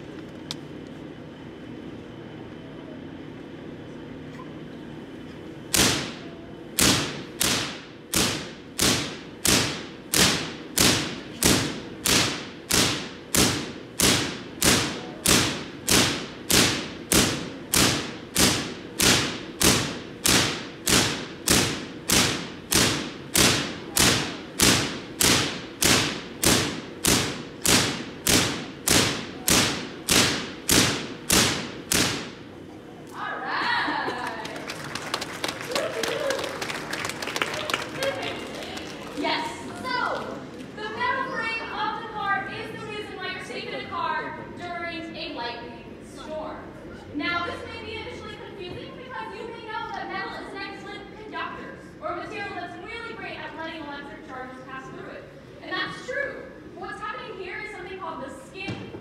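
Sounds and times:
generator low hum: 0.0 - 58.2
sharp electric cracks: 5.7 - 32.5.

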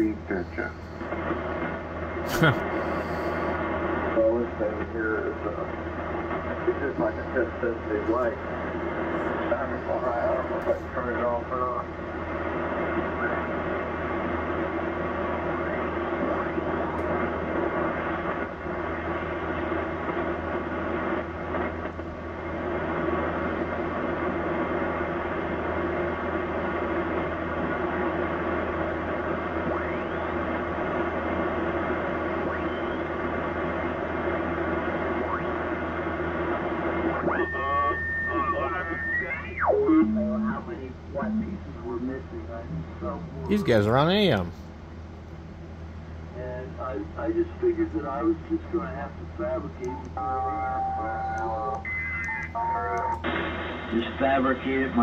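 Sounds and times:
radio band noise hiss: 0.0 - 44.7, 46.2 - 55.0
gliding radio tones: 43.5 - 44.5.

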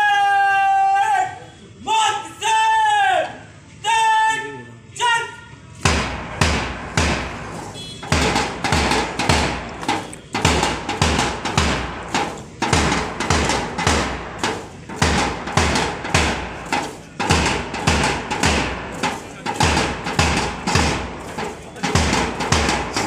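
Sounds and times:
boots marching on road: 5.9 - 23.0.

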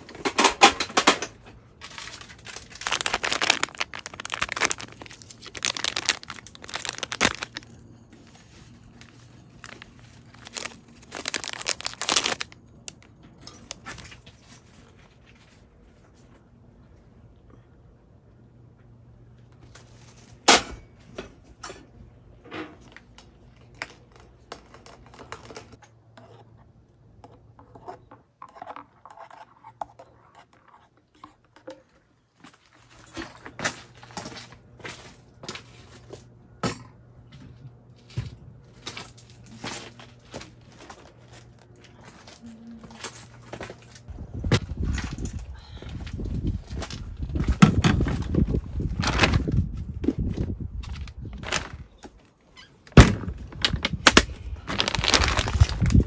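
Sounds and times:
objects being handled: 0.0 - 16.2
faint low hum: 1.2 - 52.2.

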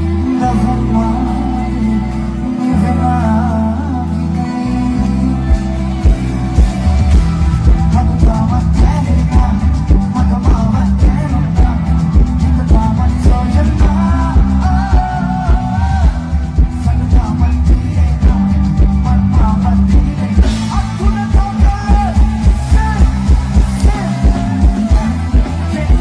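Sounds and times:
drums with heavy beat: 0.0 - 26.0
live band music: 0.0 - 26.0
person singing: 0.0 - 26.0.

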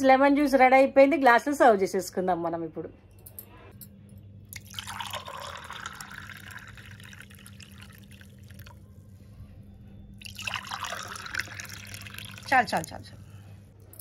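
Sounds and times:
juice pouring into glasses: 4.5 - 8.9, 10.2 - 13.0.

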